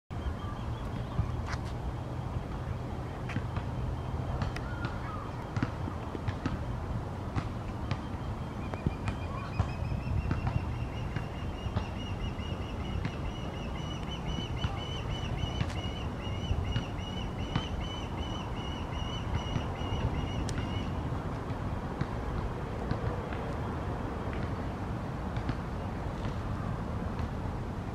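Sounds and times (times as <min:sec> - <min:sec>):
osprey whistled chirps: 0:07.9 - 0:20.9.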